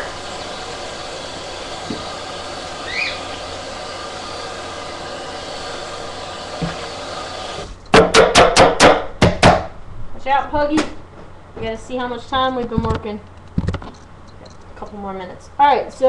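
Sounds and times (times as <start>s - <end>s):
loud sharp knocks: 7.9s - 9.7s.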